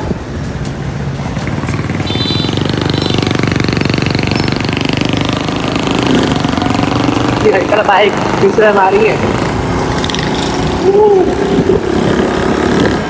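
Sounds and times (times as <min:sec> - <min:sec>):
small motorcycle engine putter: 0:10.0 - 0:10.6.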